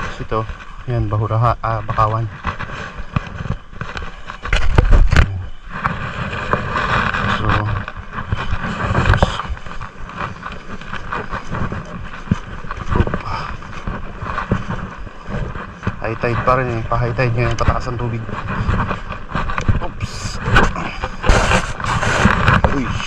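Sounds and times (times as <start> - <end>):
footsteps on bamboo footbridge: 0.0 - 23.0.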